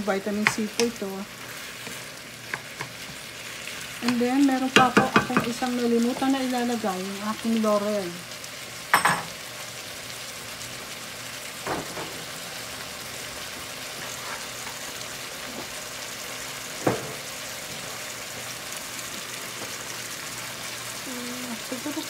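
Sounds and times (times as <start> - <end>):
food sizzling in frying pan: 0.0 - 22.0
utensil knocking against pan: 4.8 - 5.6.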